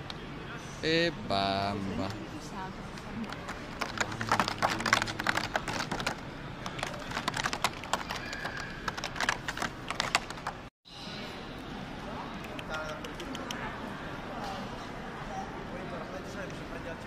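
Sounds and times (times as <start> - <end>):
busy hall noise: 0.0 - 17.0
rapid clicking and tapping: 3.2 - 10.7.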